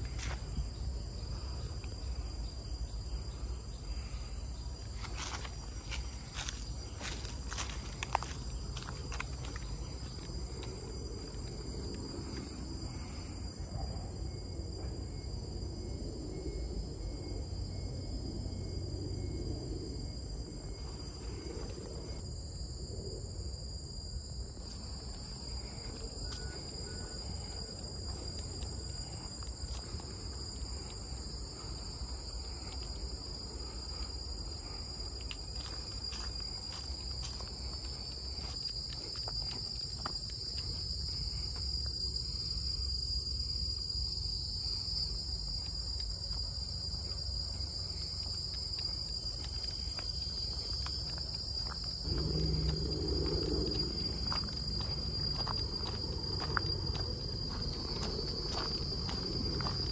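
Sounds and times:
insects buzzing: 0.0s - 59.9s
low rumble: 47.0s - 59.8s.

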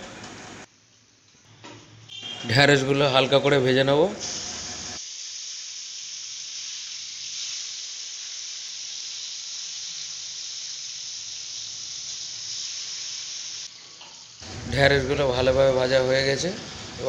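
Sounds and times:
okra sizzling in hot oil: 4.2s - 14.8s.

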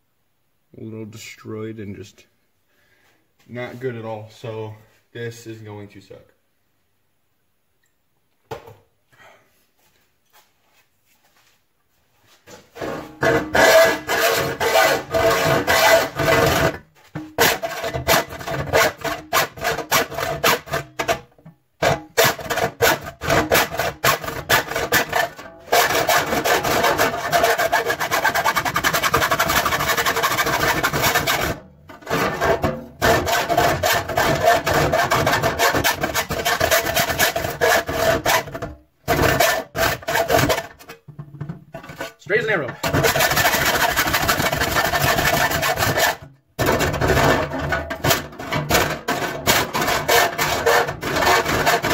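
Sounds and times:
saw rasping through sheet metal: 12.8s - 41.0s, 41.8s - 51.9s.

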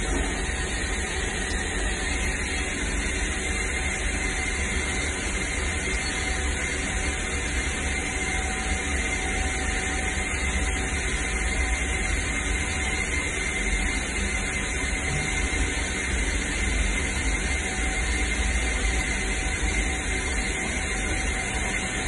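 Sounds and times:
low machine rumble: 0.0s - 12.4s
thin steady whine: 0.0s - 22.0s.

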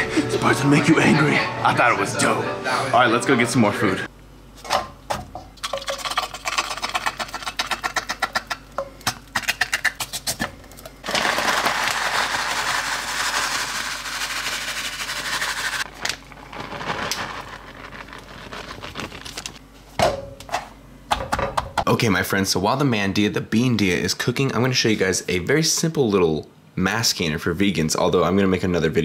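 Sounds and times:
crumbles shaken from plastic bag: 11.0s - 19.6s.

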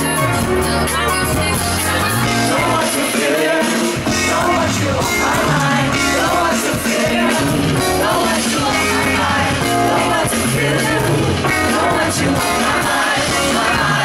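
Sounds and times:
woman singing: 0.0s - 3.4s
band playing a groove: 0.0s - 14.0s.

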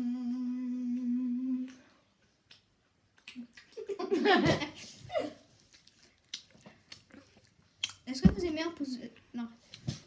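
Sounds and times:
boy humming: 0.0s - 1.9s.

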